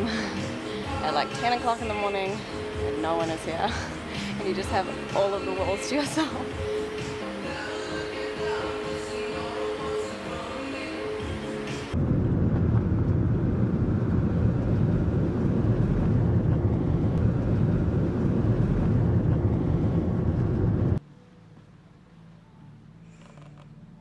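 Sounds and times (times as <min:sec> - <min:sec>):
car road noise rumble: 0:11.9 - 0:21.0.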